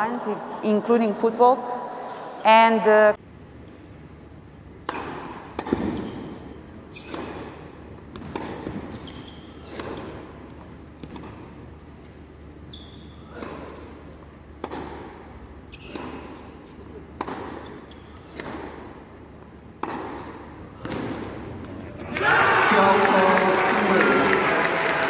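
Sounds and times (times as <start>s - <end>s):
tennis ball struck with rackets: 4.8s - 9.0s, 14.6s - 16.5s, 17.1s - 18.8s, 19.8s - 21.8s.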